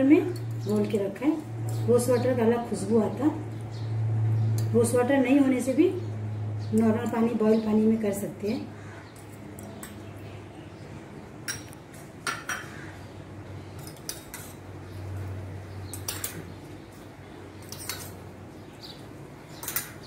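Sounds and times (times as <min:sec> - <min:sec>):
metal spoon clinking on pot: 0:11.4 - 0:12.7, 0:13.8 - 0:14.6, 0:15.9 - 0:16.4, 0:17.6 - 0:18.3, 0:19.5 - 0:20.0.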